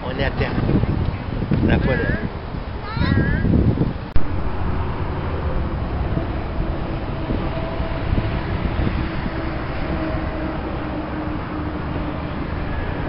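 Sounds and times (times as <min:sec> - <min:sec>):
distant traffic rumble: 0:00.0 - 0:13.0
faint engine hum: 0:04.2 - 0:13.0.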